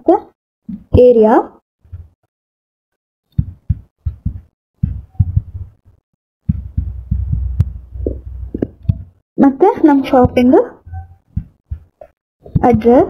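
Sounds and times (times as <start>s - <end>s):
fingertips tapping touchscreen: 3.3s - 5.8s, 6.5s - 9.2s.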